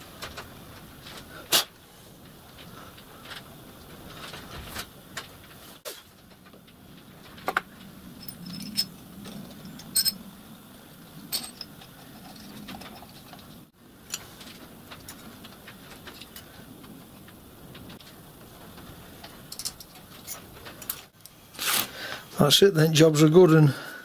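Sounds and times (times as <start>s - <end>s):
metal tools clicking and clinking: 8.2s - 10.3s, 11.3s - 13.5s, 19.5s - 21.0s.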